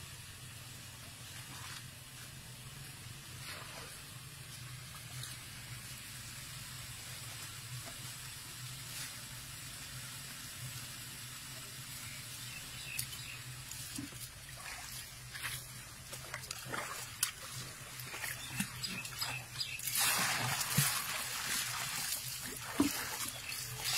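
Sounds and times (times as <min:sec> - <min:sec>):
faint water splashing: 0:00.9 - 0:09.4, 0:11.7 - 0:23.9
small splashes: 0:12.5 - 0:23.9.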